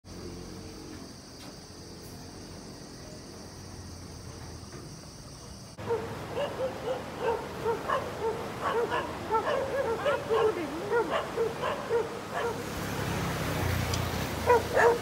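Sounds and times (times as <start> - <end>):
dog barking: 5.8 - 12.7, 14.4 - 15.0.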